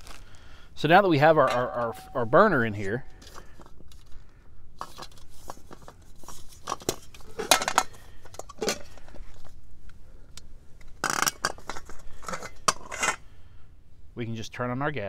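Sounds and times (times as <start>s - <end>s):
metal stove parts clinking: 1.2s - 3.4s, 6.7s - 9.0s, 11.0s - 13.2s.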